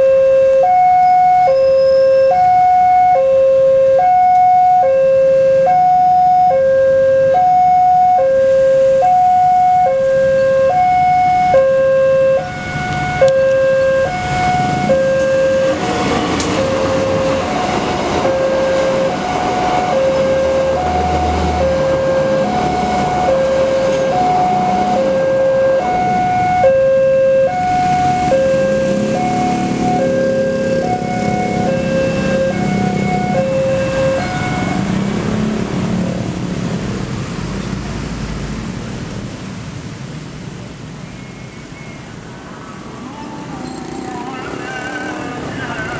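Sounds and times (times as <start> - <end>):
railroad crossing warning bell: 0.0 - 35.0
passenger train passing: 12.4 - 26.6, 27.4 - 41.0, 42.1 - 45.9.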